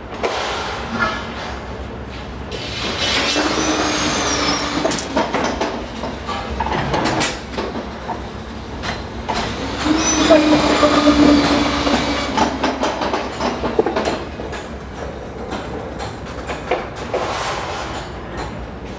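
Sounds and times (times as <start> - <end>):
bending machine humming: 3.6 - 16.3
steel bars clanking and scraping: 9.4 - 14.1.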